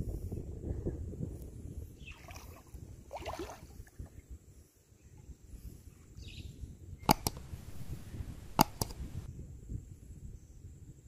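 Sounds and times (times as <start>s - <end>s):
wind rumble on microphone: 0.0s - 11.0s
shallow water splashing: 2.1s - 4.2s
sharp clicks: 7.0s - 9.3s.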